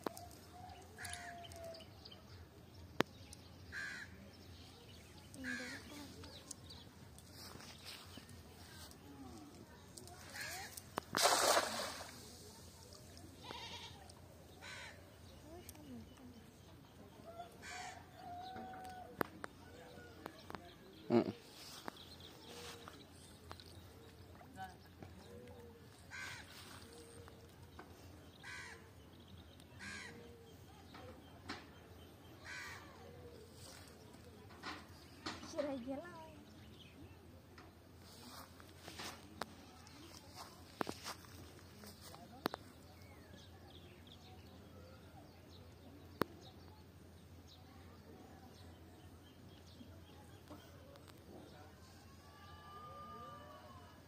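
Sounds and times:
crow cawing: 14.6s - 15.0s, 32.4s - 32.9s.

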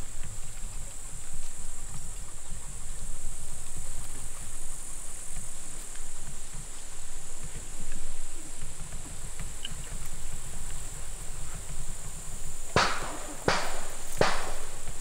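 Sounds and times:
insects chirring: 0.0s - 15.0s
sharp knock: 12.8s - 15.0s.

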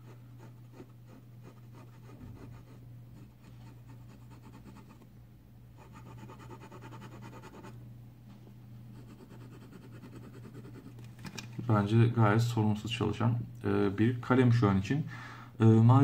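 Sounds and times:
pen nib scratching on paper: 0.0s - 5.0s, 5.8s - 7.8s, 9.0s - 11.0s.

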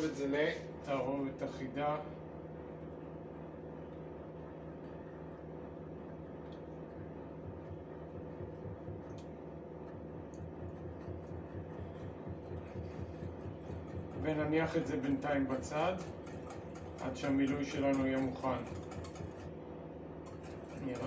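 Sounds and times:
steady low hum: 0.0s - 21.0s
whisk swishing in bowl: 10.4s - 19.5s, 20.3s - 21.0s
whisk clinking against bowl: 14.8s - 19.4s.

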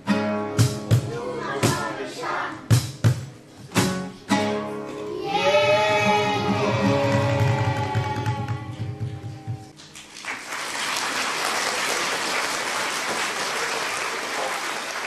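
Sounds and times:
blues song with guitar: 0.0s - 9.7s
audience applause: 6.7s - 8.8s, 9.8s - 15.0s.

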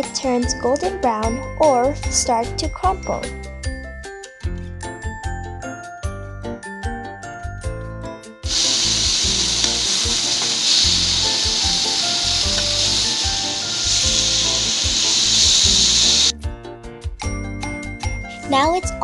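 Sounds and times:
jingly background music: 0.0s - 16.3s, 17.0s - 19.0s
beef sizzling in a frying pan: 8.5s - 16.3s.

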